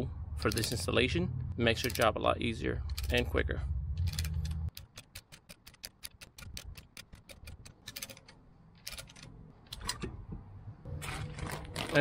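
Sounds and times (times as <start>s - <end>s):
metallic tool clicks: 4.0s - 10.0s
hand ratchet clicking fast: 4.1s - 8.2s.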